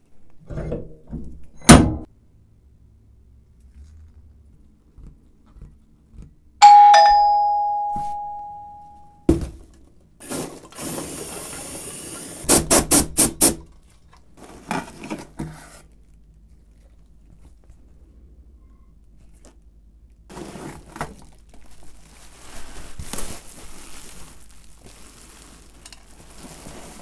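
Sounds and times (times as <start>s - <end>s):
two-tone doorbell chime: 6.6s - 9.2s
packing peanuts and cardboard rustling: 13.9s - 17.9s, 20.2s - 27.0s.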